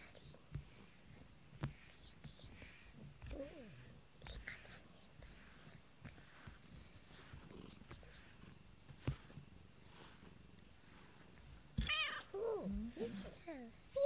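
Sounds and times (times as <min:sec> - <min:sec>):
cat purring: 0:00.0 - 0:13.8.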